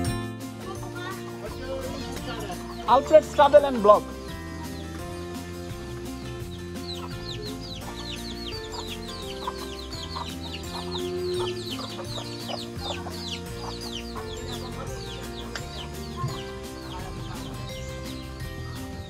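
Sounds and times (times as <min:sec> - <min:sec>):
background music of held chords: 0:00.0 - 0:19.0
chicks peeping: 0:04.2 - 0:18.8.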